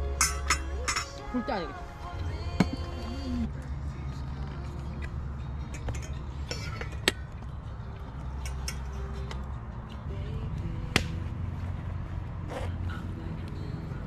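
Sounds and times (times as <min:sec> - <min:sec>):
utensils and dishes clinking: 0:00.0 - 0:01.4, 0:05.5 - 0:07.4, 0:08.3 - 0:09.3
steady low rumble: 0:00.0 - 0:14.0.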